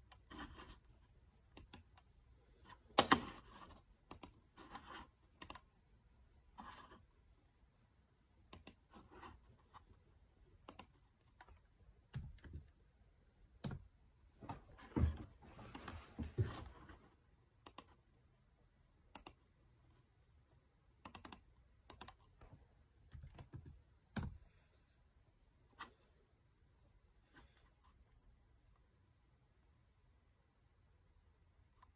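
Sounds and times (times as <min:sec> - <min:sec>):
mouse and keyboard clicks: 0:01.5 - 0:02.1, 0:03.0 - 0:05.7, 0:08.5 - 0:08.9, 0:10.6 - 0:12.7, 0:17.6 - 0:18.0, 0:19.1 - 0:19.4, 0:21.0 - 0:22.3.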